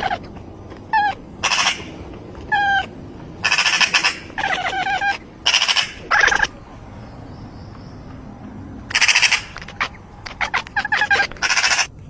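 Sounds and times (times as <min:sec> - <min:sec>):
magpie rattling chatter: 0:00.9 - 0:06.5, 0:08.9 - 0:12.0
cat chirping meow: 0:02.5 - 0:06.5, 0:08.9 - 0:11.9.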